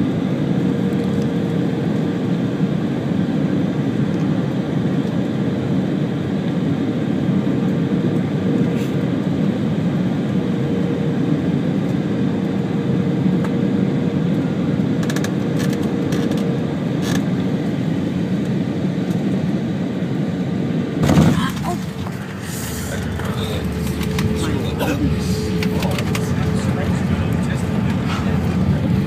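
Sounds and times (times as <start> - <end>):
jet engines and airflow rushing: 0.0 - 29.0
faint whine: 21.0 - 29.0.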